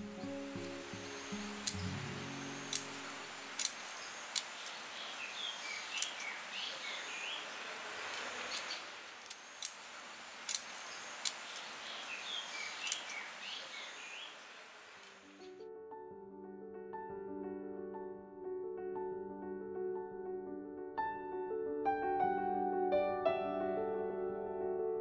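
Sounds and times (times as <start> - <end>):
steady background hiss: 0.0 - 15.5
birds chirping: 0.0 - 15.6
scissors snipping: 2.7 - 4.8, 5.9 - 6.4, 8.1 - 11.7, 12.8 - 13.2.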